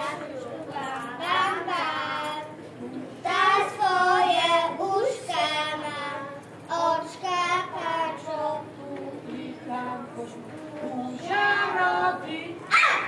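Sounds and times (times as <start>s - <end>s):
children singing: 3.2s - 12.8s.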